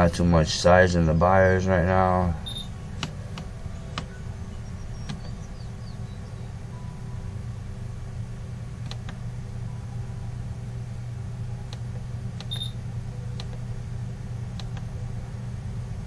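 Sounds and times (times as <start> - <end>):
steady low hum: 0.0 - 16.0
short high beep: 2.4 - 2.7
computer mouse clicking: 14.6 - 14.9.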